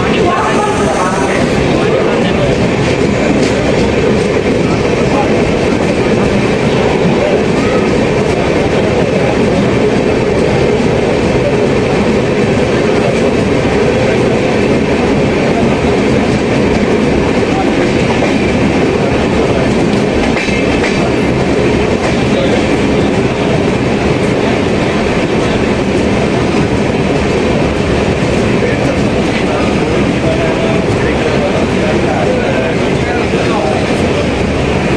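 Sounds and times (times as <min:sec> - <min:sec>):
train wheels rumbling on rails: 0:00.0 - 0:34.9.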